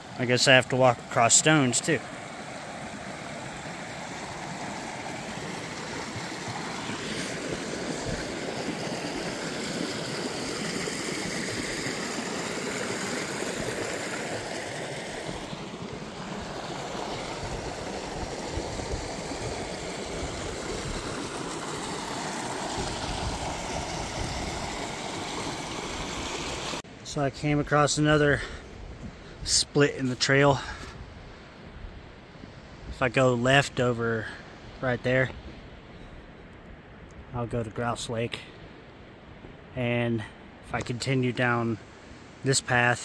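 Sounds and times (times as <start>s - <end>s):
creek rushing over rocks: 0.0s - 28.4s.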